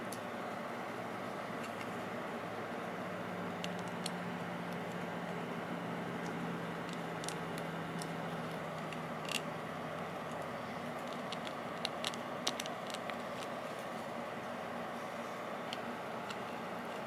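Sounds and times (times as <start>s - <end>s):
plastic bricks clicking: 6.8s - 9.4s, 10.9s - 13.5s.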